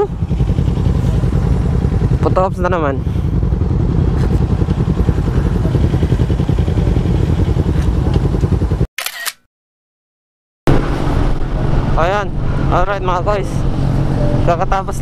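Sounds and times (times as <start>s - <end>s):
motorcycle engine running: 0.0s - 8.9s.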